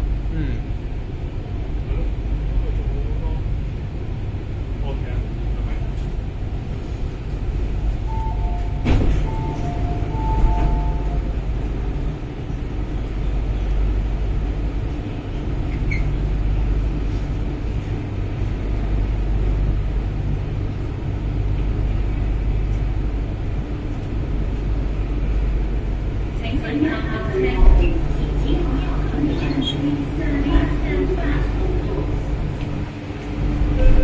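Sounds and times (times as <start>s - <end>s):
train rumble: 0.0s - 34.0s
two-tone door warning beeps: 8.1s - 11.3s, 33.7s - 34.0s.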